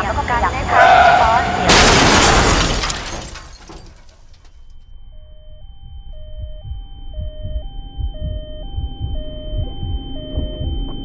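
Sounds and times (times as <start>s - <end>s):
debris clattering: 1.6s - 4.6s
two-tone emergency siren: 4.8s - 11.0s
low regular thumps: 5.8s - 11.0s.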